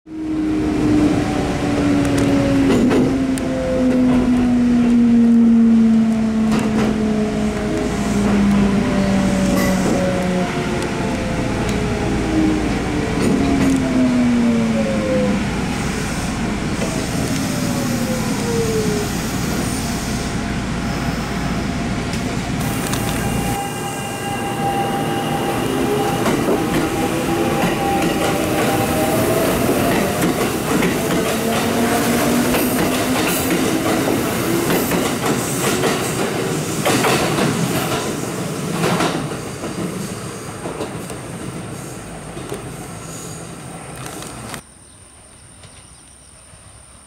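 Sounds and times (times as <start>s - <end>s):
train motor whine: 22.6s - 34.7s.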